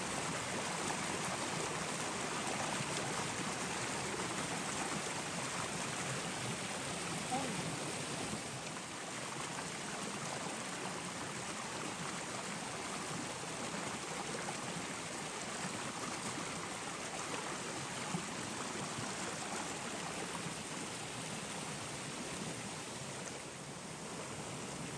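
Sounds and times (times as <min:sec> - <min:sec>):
flowing water rushing: 0:00.0 - 0:24.9.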